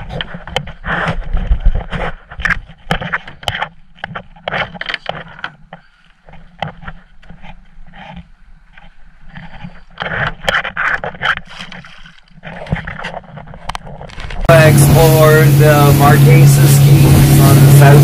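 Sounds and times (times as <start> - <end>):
water splashing: 14.1 - 18.0.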